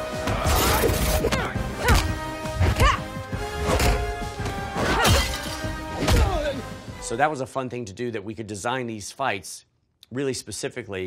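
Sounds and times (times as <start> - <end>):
action music score: 0.0 - 7.5.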